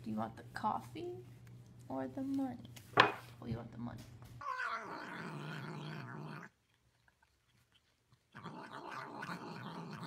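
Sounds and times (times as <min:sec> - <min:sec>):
cat growling low: 0:04.4 - 0:06.6, 0:08.3 - 0:10.0.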